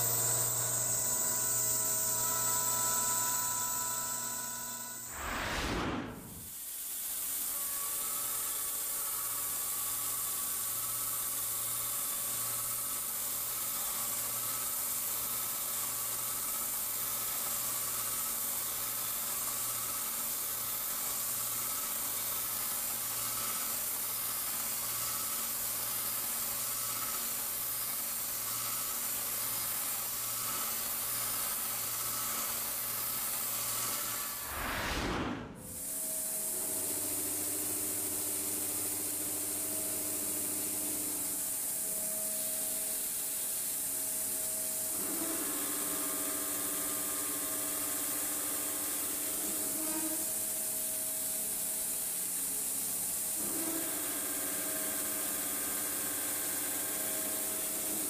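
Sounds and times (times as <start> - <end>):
low hum: 4.7 - 6.5, 34.4 - 35.8
milling cutter rushing noise: 5.1 - 6.5, 34.3 - 35.8.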